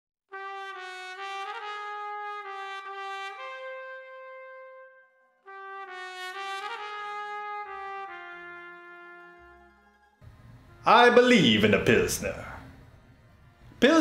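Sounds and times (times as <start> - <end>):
solo trumpet slow melody: 0.3 - 11.3.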